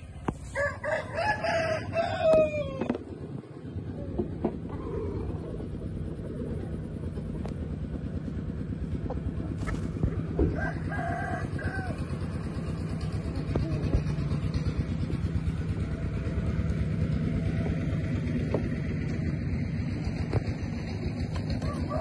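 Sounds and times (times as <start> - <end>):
low rumble: 0.0 - 22.0
rooster crowing: 0.5 - 3.0, 10.5 - 12.3, 21.6 - 22.0.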